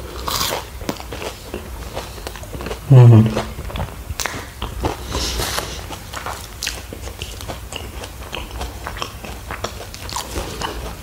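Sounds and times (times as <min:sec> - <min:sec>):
mouth chewing clicks and smacks: 0:00.2 - 0:11.0.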